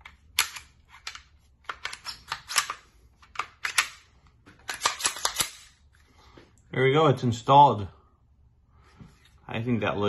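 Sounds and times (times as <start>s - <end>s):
pistol parts clicking: 0.0s - 5.8s.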